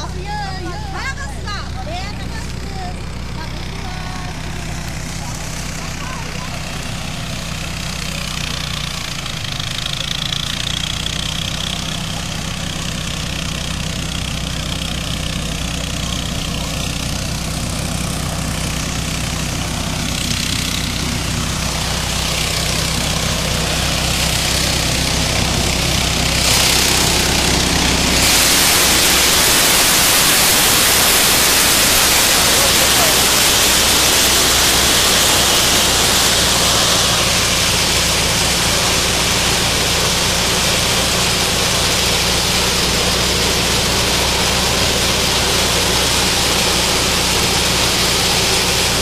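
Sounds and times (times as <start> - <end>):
harvester engine running: 0.0 - 49.0
loud even rushing noise: 18.1 - 49.0.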